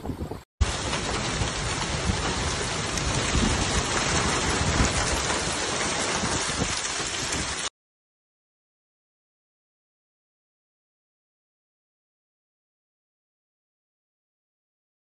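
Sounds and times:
heavy rain pouring: 0.6 - 7.7.

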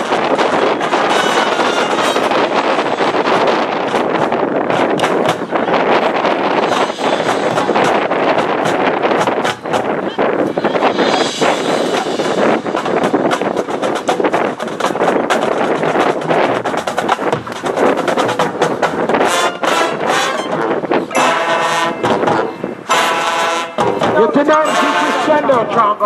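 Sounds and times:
brass chords: 0.0 - 12.8, 18.1 - 26.0
marching band drum hits: 6.7 - 10.0, 10.9 - 25.0.

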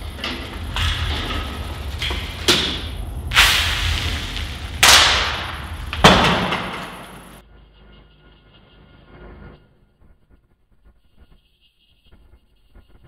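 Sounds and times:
low hum: 0.0 - 11.4
loud sharp echoing cracks: 0.6 - 7.4.

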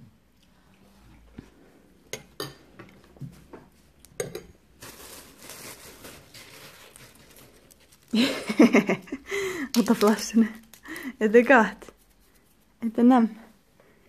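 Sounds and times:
metal spoon clinking on ceramic bowl: 4.2 - 4.5
plastic bag rustling: 4.7 - 9.1, 9.7 - 11.4
person speaking: 9.6 - 12.1, 12.8 - 13.5.

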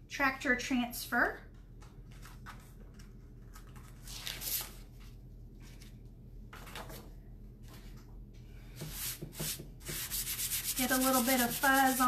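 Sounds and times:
stencil sheet scraping fabric: 9.0 - 12.0.

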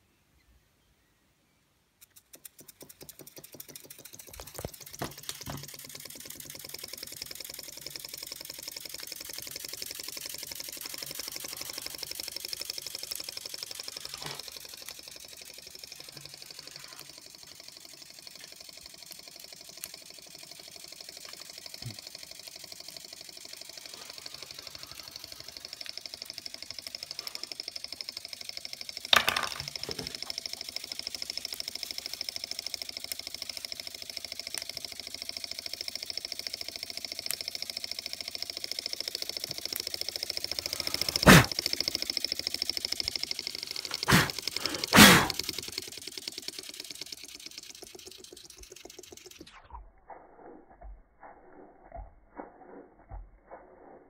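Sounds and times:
toy steam engine clattering: 2.0 - 50.6.

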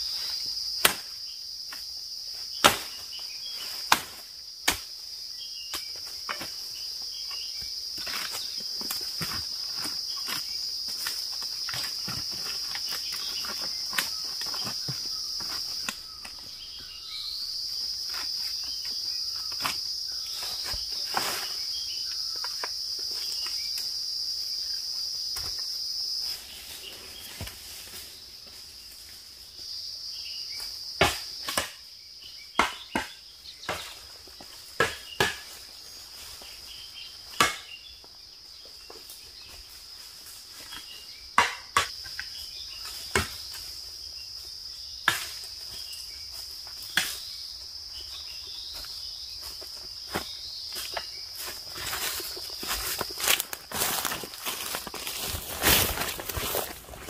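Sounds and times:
high-pitched insect drone: 5.1 - 30.9
dry leaves crackling and rustling: 51.4 - 57.0.

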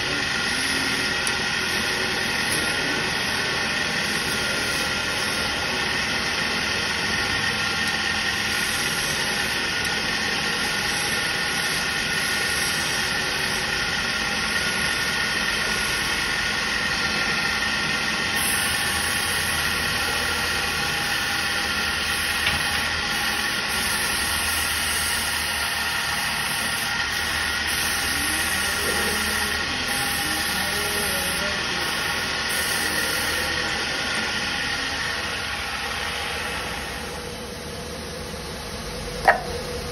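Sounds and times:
wood lathe motor whine: 0.0 - 39.9.

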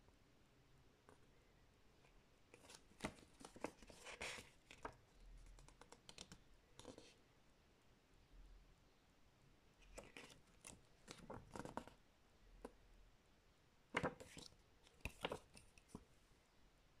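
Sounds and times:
glossy pages rustling: 2.6 - 5.0, 9.9 - 11.9, 14.0 - 16.0.

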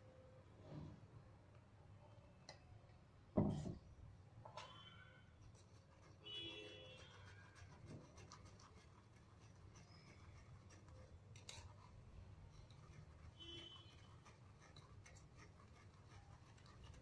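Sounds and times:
metal spoon scraping steel bowl: 5.4 - 17.0.

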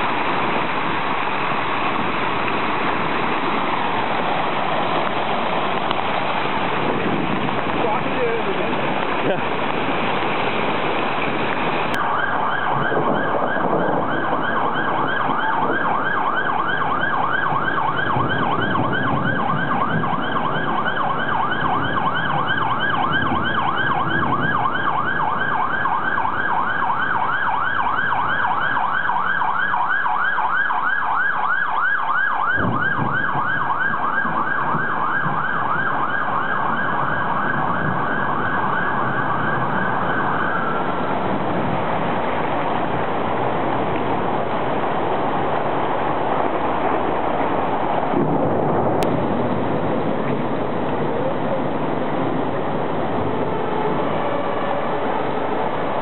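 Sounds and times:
heavy rain: 0.0 - 56.0
running floodwater: 0.0 - 56.0
fire engine siren yelping: 11.8 - 56.0.

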